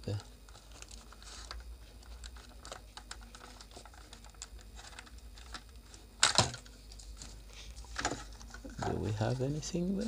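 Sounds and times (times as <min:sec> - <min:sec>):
plastic cracking: 0:00.5 - 0:07.3.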